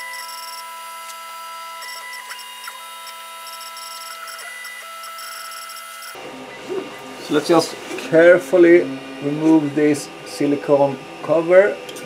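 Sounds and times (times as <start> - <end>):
stepper motor whines: 0.0 - 12.0
fan hum: 6.1 - 12.0.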